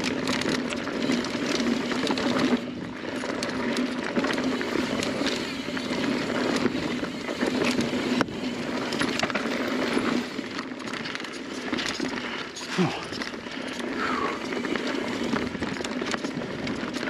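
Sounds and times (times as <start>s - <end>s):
bike rattling over bumps: 0.0s - 17.0s
bike tyres on dirt: 0.0s - 17.0s.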